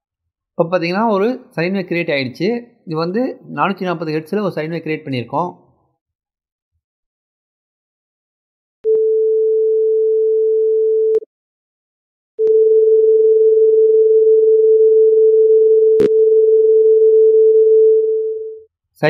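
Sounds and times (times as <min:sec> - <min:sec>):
sine wave test tone: 0:12.4 - 0:18.6.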